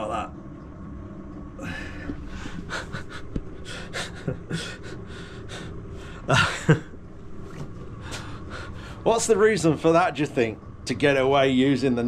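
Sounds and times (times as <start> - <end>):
man laughing: 2.7 - 5.0, 6.2 - 7.0.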